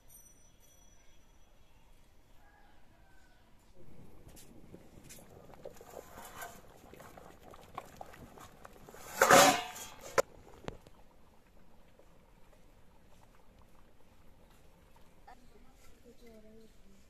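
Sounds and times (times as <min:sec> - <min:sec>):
sharp metal clinks: 0:00.0 - 0:01.8
rice boiling with soft bubbling: 0:00.1 - 0:17.0
wood fire crackling: 0:03.8 - 0:17.0
metallic scrape and clatter: 0:04.3 - 0:06.7, 0:08.9 - 0:10.2.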